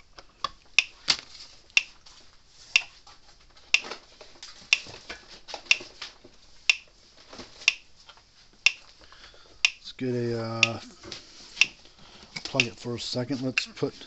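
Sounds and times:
electric fence energiser ticking: 9.6 - 10.9, 12.5 - 13.0.

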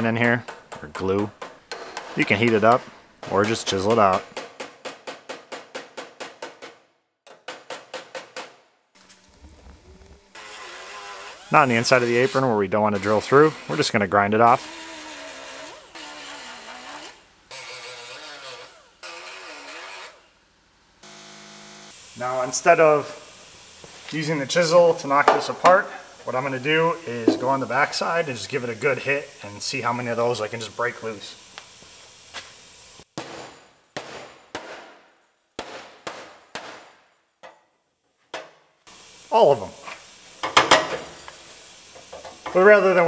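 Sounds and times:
die grinder grinding metal: 9.2 - 20.3, 21.0 - 33.0, 38.9 - 43.0.

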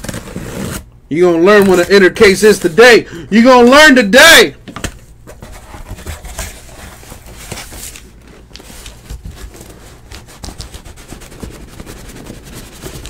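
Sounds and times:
cardboard rubbing and scraping: 0.0 - 0.9, 5.2 - 13.0.

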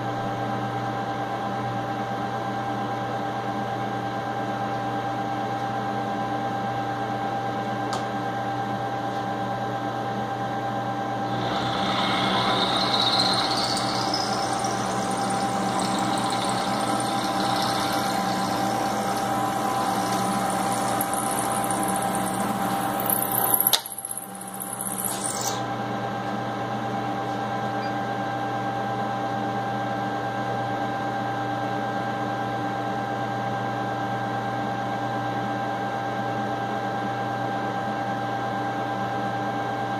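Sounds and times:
end mill cutting metal: 11.2 - 25.7
milling machine running: 11.2 - 25.7.

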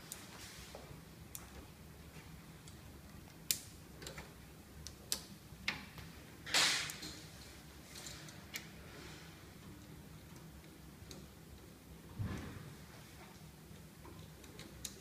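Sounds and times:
hands clicking and tapping parts: 1.3 - 8.8, 9.6 - 11.8, 13.2 - 15.0.

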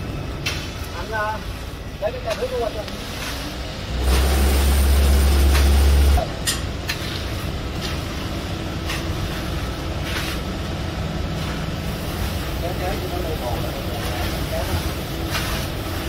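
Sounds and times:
concrete pump running: 0.4 - 16.0.

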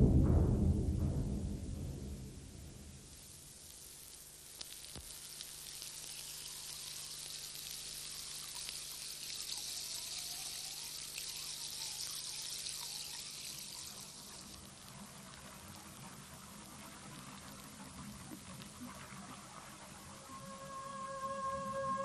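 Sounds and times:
water trickling into water: 3.6 - 20.9.

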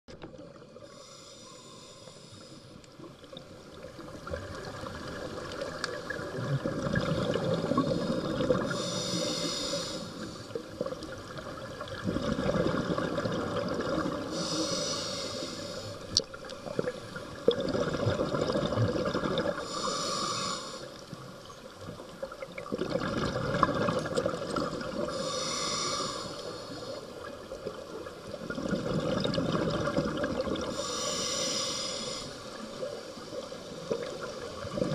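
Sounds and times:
regulator hiss on inhale: 0.8 - 3.1, 7.6 - 10.8, 14.2 - 17.1, 19.6 - 21.2, 24.9 - 27.3, 30.6 - 34.4
rush of exhaled bubbles: 4.2 - 8.9, 10.6 - 14.6, 16.6 - 19.8, 22.5 - 26.2, 27.6 - 30.8, 33.9 - 34.9.

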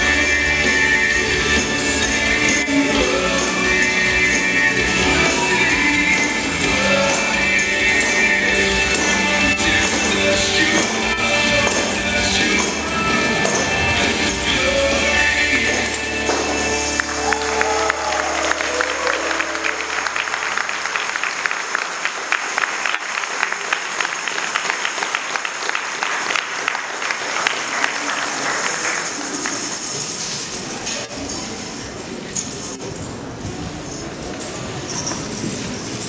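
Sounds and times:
hall noise: 0.0 - 23.0
tambourines jingling: 0.0 - 25.4, 26.2 - 36.0
worship music: 0.0 - 31.0.

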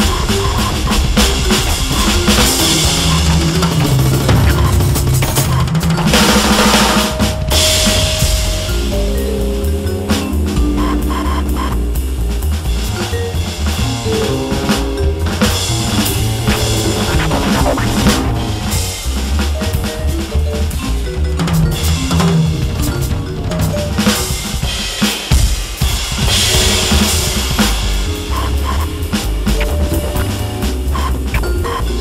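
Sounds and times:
sequenced bass line: 0.0 - 24.1
electronic drum kit swing pattern: 0.0 - 32.0.

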